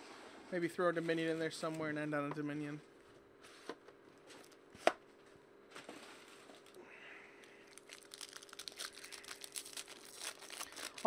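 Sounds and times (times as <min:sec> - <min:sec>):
foil wrapper crinkling: 0:07.4 - 0:11.0.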